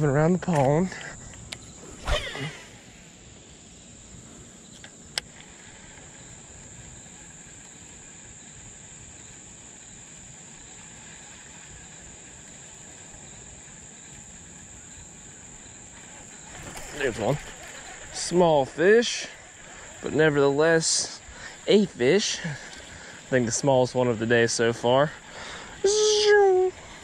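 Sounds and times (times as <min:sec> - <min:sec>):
insects chirring: 0:00.0 - 0:27.0
fishing rod swishing: 0:01.8 - 0:02.8.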